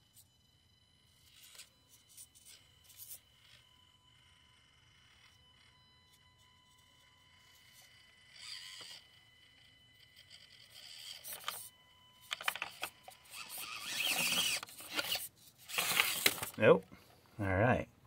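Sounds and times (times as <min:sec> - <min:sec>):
small electric motor whirring: 0:00.0 - 0:16.6
toy truck tipping over clatter: 0:10.1 - 0:16.6.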